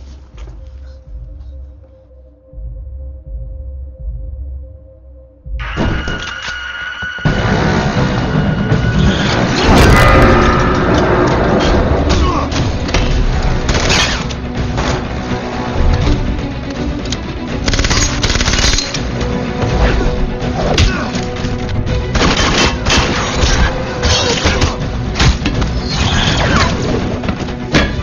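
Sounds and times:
dramatic orchestral score: 0:05.5 - 0:28.0.

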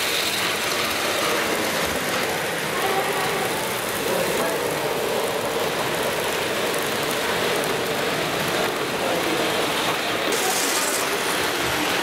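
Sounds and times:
model trains rattling on track: 0:00.0 - 0:12.0.

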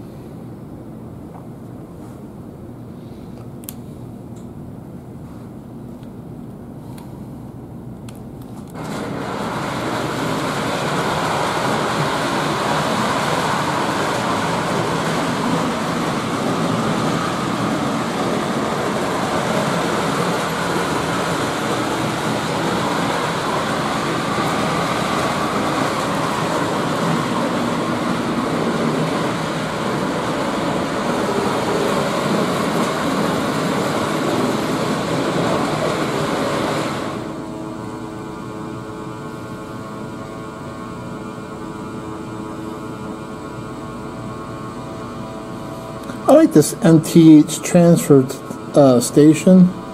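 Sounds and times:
motor mechanism running: 0:08.8 - 0:37.5.

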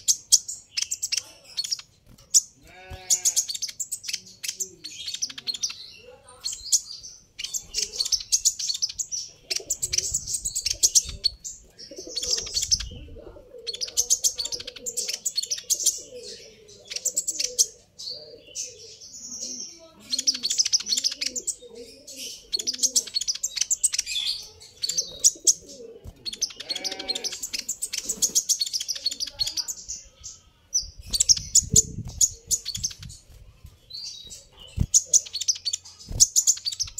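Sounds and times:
songbird twittering: 0:00.0 - 0:33.3, 0:33.9 - 0:36.9
low cooing calls: 0:09.4 - 0:19.1, 0:20.1 - 0:23.5, 0:24.9 - 0:28.4.

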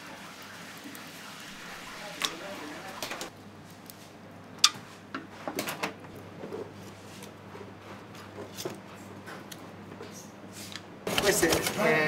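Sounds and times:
kitchen clatter: 0:11.1 - 0:12.0.

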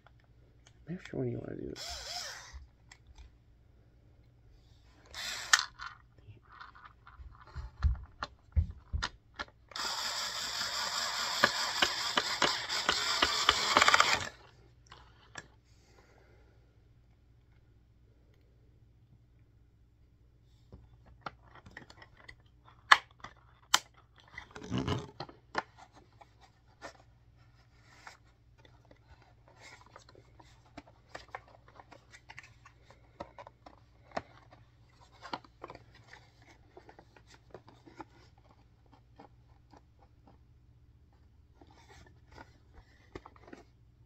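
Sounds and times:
plastic parts clicking: 0:05.0 - 0:15.6, 0:21.1 - 0:25.8.

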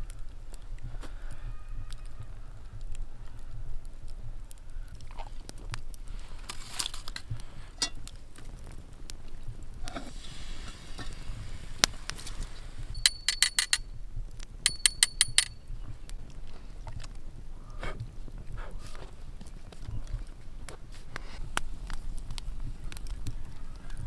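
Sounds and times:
ringing metal clinks: 0:13.0 - 0:13.9, 0:14.7 - 0:15.6
tongs clicking and scraping metal: 0:13.0 - 0:13.9, 0:14.7 - 0:15.6.

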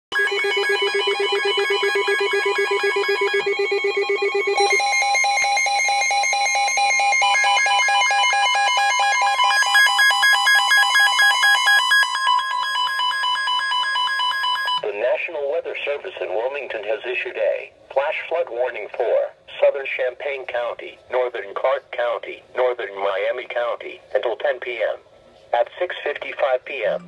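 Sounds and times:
alert radio electronic beeps: 0:00.2 - 0:12.1.

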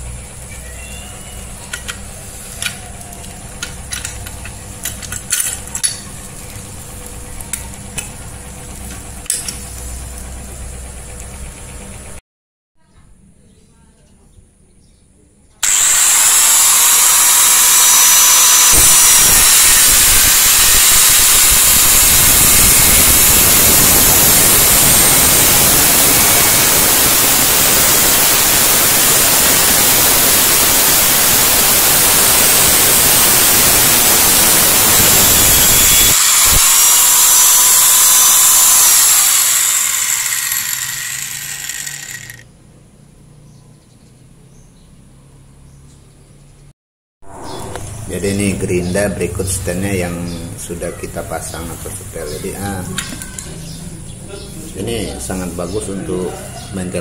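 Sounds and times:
angle grinder cutting steel pipe: 0:15.6 - 0:42.5
motor winding down: 0:15.6 - 0:42.5.

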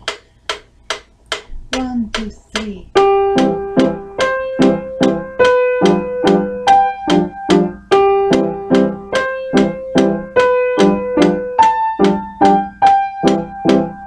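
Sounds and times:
piano playing slow chords: 0:02.9 - 0:14.0.

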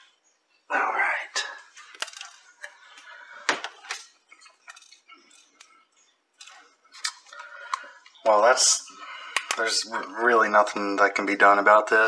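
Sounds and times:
small hard objects clicking: 0:03.9 - 0:05.7.

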